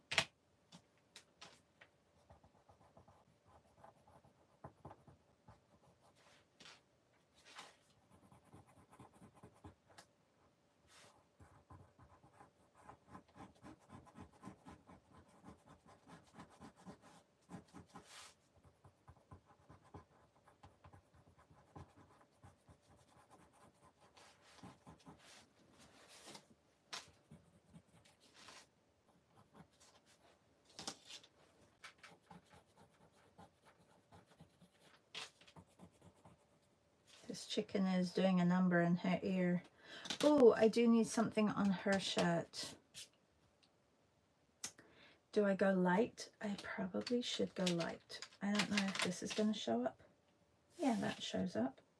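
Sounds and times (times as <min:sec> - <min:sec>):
pencil scratching on paper: 0:02.0 - 0:06.4, 0:07.4 - 0:10.0, 0:10.9 - 0:30.4, 0:31.8 - 0:36.7.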